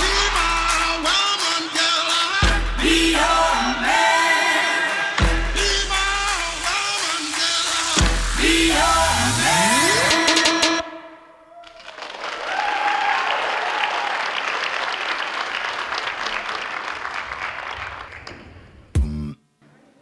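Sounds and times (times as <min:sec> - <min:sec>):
loud burst of music: 0:00.0 - 0:11.1
audience applause: 0:11.6 - 0:18.3.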